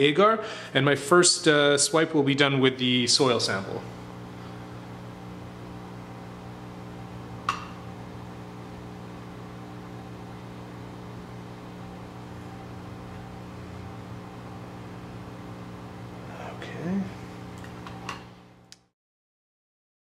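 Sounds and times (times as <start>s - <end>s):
machine hum: 0.0s - 18.8s.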